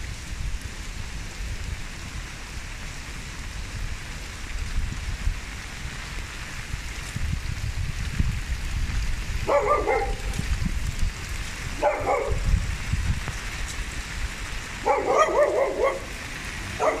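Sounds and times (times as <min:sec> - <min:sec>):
steady rain falling: 0:00.0 - 0:17.0
dog barking: 0:09.4 - 0:10.4, 0:11.8 - 0:12.5, 0:14.8 - 0:16.1, 0:16.8 - 0:17.0.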